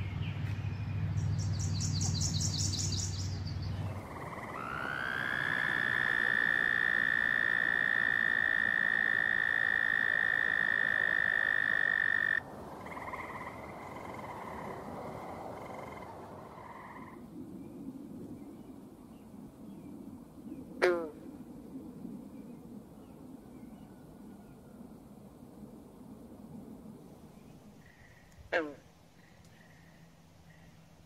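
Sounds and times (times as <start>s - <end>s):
bullfrog low call: 3.8s - 17.2s, 27.8s - 30.8s
faint toad trills: 3.9s - 17.2s.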